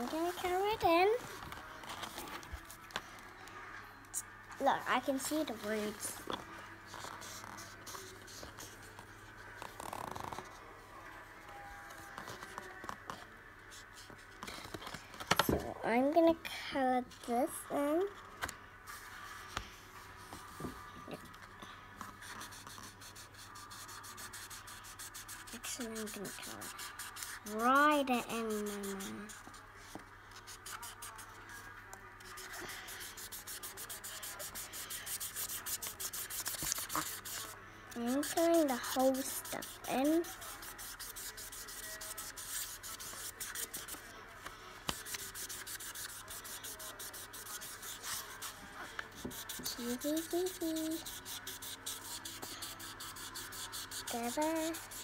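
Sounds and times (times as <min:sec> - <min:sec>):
felt-tip marker scratching paper: 0:06.9 - 0:10.5, 0:22.0 - 0:29.6, 0:30.4 - 0:31.3, 0:32.2 - 0:44.0, 0:44.8 - 0:55.0.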